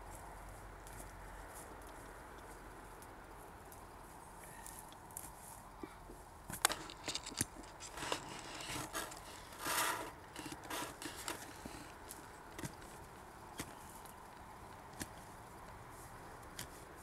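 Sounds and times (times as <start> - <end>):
spade digging into soil: 6.5 - 12.0
rustling scrape in brambles: 6.6 - 12.4.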